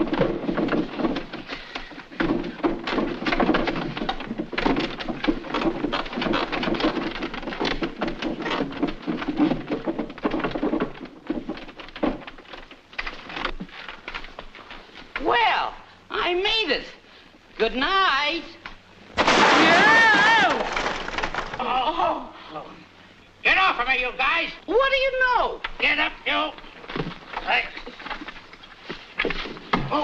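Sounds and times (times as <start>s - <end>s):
wooden bunk bed creaking and knocking: 0.0s - 15.6s.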